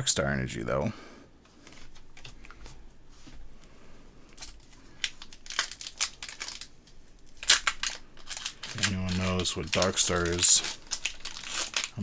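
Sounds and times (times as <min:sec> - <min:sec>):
foil wrapper crinkling and tearing: 0:04.3 - 0:12.0.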